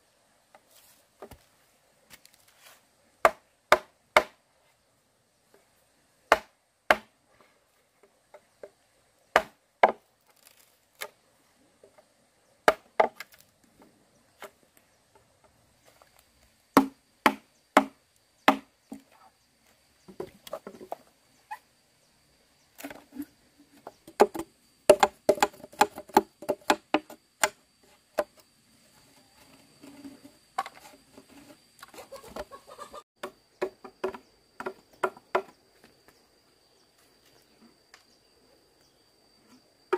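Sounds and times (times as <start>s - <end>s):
sharp chopping knocks: 6.3s - 7.1s, 9.4s - 10.0s, 16.8s - 18.7s.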